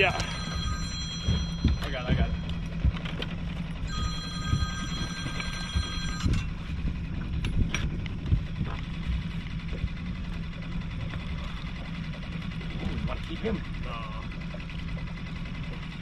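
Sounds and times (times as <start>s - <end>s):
high steady ringing tone: 0.0s - 6.9s
outboard motor humming: 0.0s - 16.0s.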